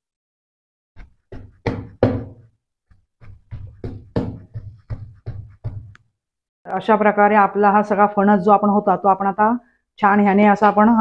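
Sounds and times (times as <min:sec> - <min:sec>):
pestle pounding on steel plate: 0:01.0 - 0:02.5, 0:03.2 - 0:06.0.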